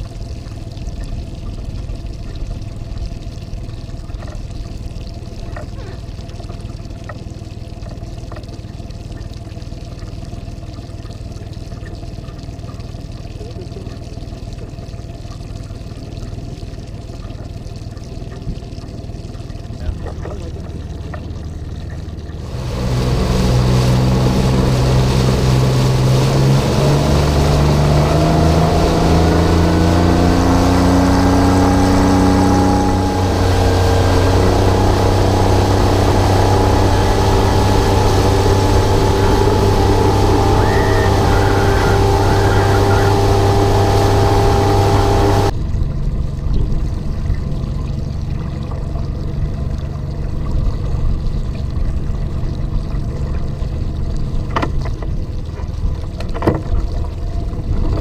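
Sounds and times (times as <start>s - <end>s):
outboard motor accelerating: 0.0s - 58.0s
water lapping: 0.0s - 58.0s
water spray rushing: 22.3s - 45.6s.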